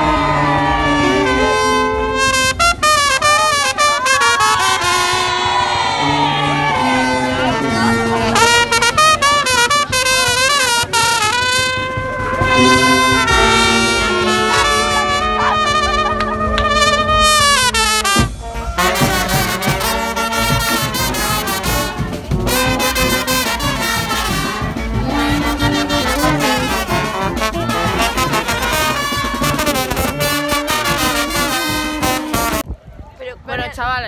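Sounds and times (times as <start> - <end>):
brass band playing: 0.0 - 32.7.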